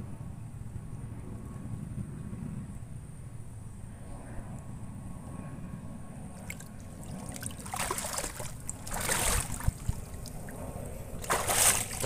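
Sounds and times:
fish splashing at water surface: 0:06.4 - 0:10.6, 0:11.2 - 0:12.0
water trickling: 0:06.4 - 0:10.6.

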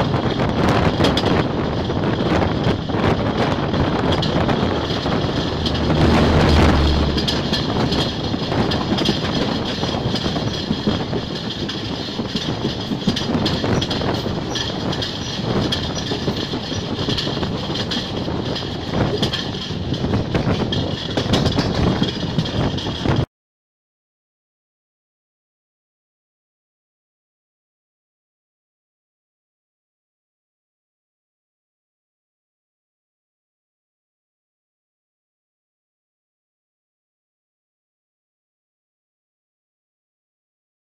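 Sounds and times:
diesel locomotive engine hum: 0:00.0 - 0:23.3
passenger coaches rumbling: 0:00.0 - 0:23.3
wheels clattering over rail joints: 0:00.0 - 0:23.3.

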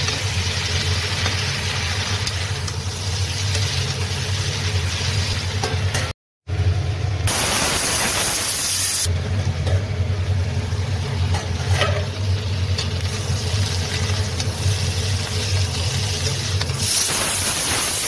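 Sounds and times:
vegetables sizzling in a pan: 0:00.0 - 0:05.9, 0:07.3 - 0:09.1, 0:10.2 - 0:18.0
pressure cooker hissing: 0:07.3 - 0:09.1, 0:13.2 - 0:18.0.

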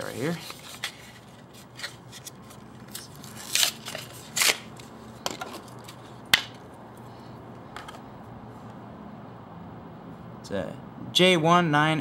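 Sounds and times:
packaging scraping rustles: 0:00.0 - 0:06.0.

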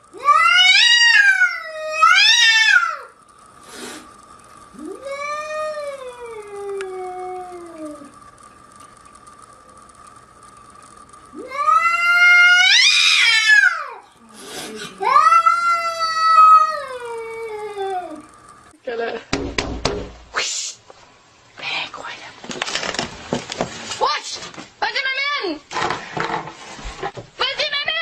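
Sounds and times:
cat yowling: 0:00.2 - 0:03.1, 0:11.4 - 0:14.0.

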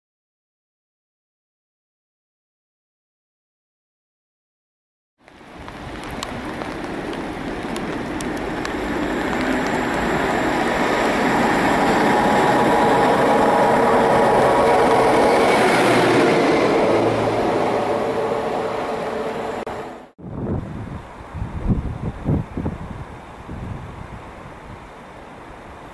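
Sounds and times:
electric locomotive passing: 0:05.5 - 0:20.2.

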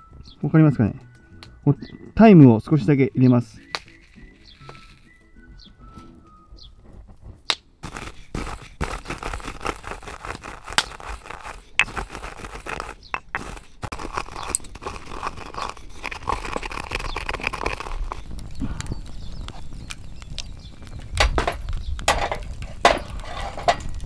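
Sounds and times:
dried herbs crushed between fingers: 0:03.2 - 0:05.2, 0:07.4 - 0:21.1.

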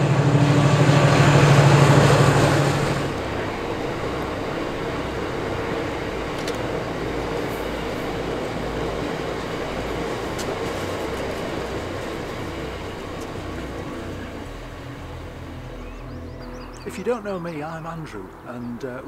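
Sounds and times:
sharp clicks of train wheels: 0:00.0 - 0:14.2
freight train rolling on rails: 0:00.0 - 0:19.0.

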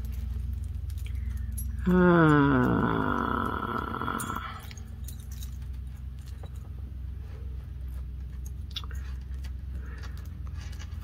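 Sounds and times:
steady low hum: 0:00.0 - 0:11.0
metal chain bracelet clinking: 0:03.8 - 0:06.7.

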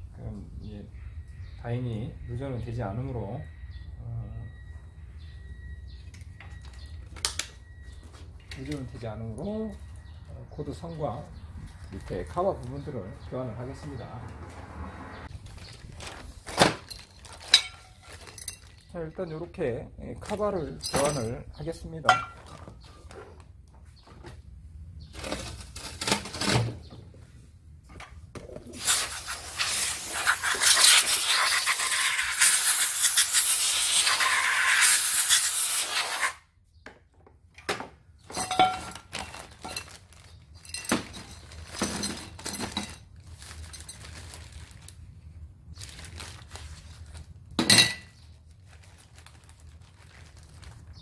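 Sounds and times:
plastic bag rustling: 0:15.3 - 0:19.0, 0:25.1 - 0:26.5, 0:39.0 - 0:47.6, 0:48.2 - 0:51.0
tool clinks and taps: 0:38.3 - 0:39.0.

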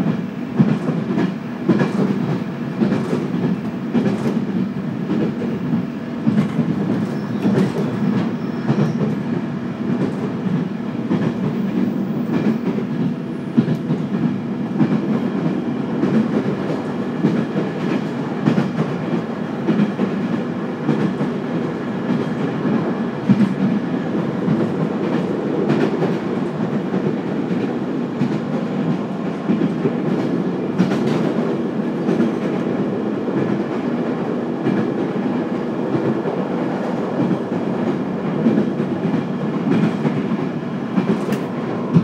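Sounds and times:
train wheels rumbling on rails: 0:00.0 - 0:42.0.

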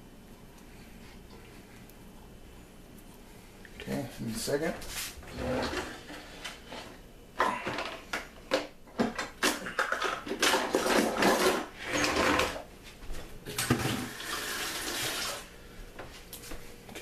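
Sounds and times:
kitchen utensils clattering: 0:09.0 - 0:12.6.

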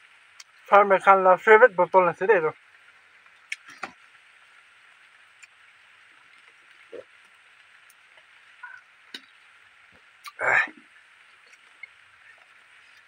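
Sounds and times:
steady low hiss: 0:00.0 - 0:13.0
gulps swallowing a drink: 0:10.2 - 0:12.5.

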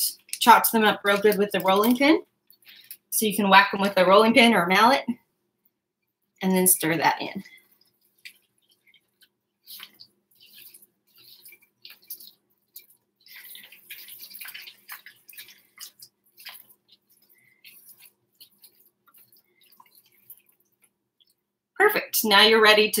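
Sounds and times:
spatula stirring thick batter: 0:00.0 - 0:04.9, 0:05.7 - 0:21.7.

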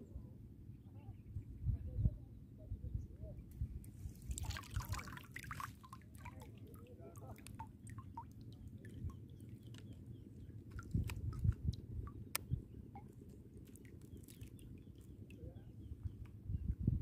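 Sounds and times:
wind rumble on microphone: 0:00.0 - 0:05.0, 0:08.8 - 0:13.0, 0:14.6 - 0:17.0
small water splashes and drips: 0:03.8 - 0:15.6.

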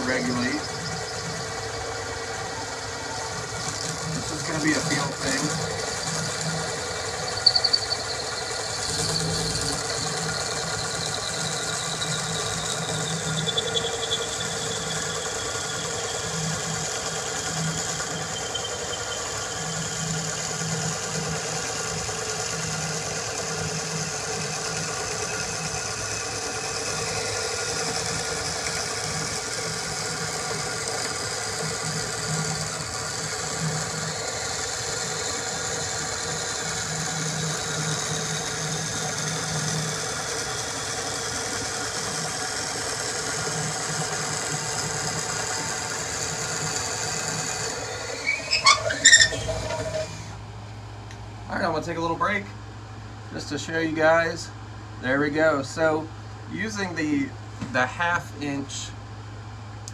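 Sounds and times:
drill whining under load: 0:00.0 - 0:50.4.

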